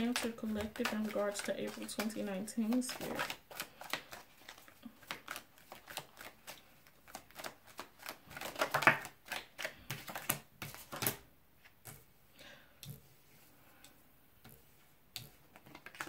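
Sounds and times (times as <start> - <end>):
cards being shuffled: 0.0 - 11.8, 15.2 - 16.0.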